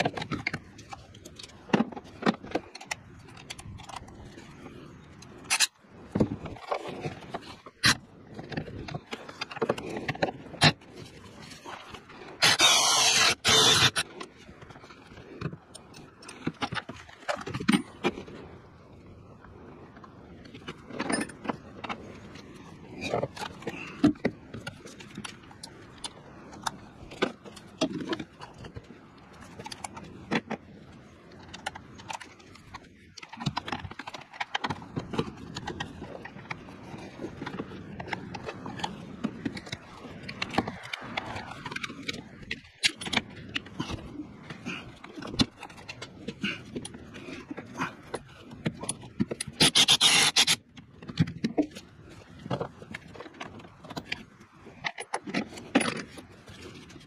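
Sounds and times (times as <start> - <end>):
hand tools clinking and scraping: 12.4 - 14.0, 48.8 - 50.6.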